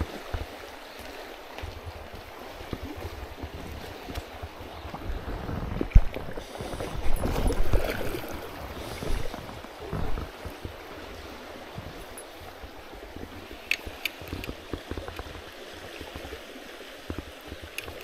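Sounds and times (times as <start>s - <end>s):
river water rushing: 0.0s - 18.0s.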